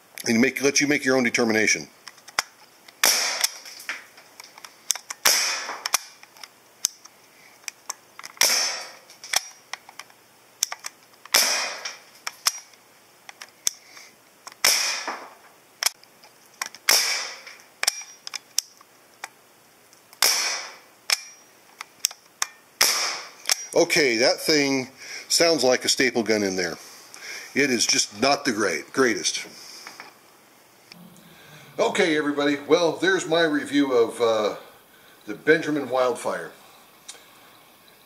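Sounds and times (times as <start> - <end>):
air rifle shots with air hiss: 3.0 - 3.7, 5.1 - 6.2, 8.4 - 9.6, 11.3 - 12.6, 14.6 - 15.4, 16.8 - 18.2, 20.2 - 21.4, 22.8 - 23.7.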